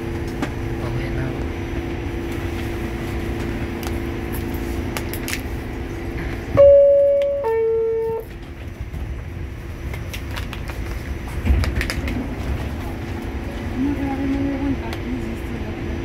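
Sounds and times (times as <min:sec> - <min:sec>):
subway car hum: 0:00.0 - 0:16.0
two-note door chime: 0:06.6 - 0:08.2.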